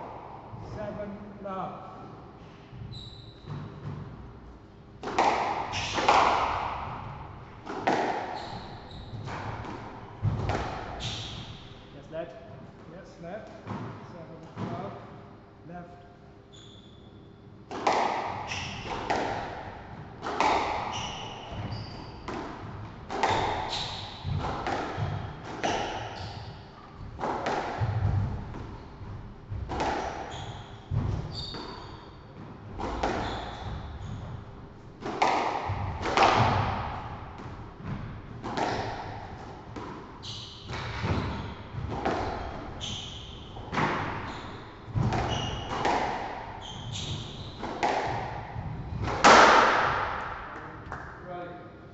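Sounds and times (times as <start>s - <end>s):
shoes squeaking on wooden floor: 2.9s - 3.8s, 8.3s - 9.3s, 20.5s - 22.3s, 30.0s - 34.6s, 40.2s - 45.9s, 46.5s - 47.8s
squash ball cracking off walls: 5.0s - 8.6s, 17.7s - 21.7s, 22.3s - 26.4s, 27.2s - 28.7s, 35.0s - 40.0s, 44.9s - 50.5s.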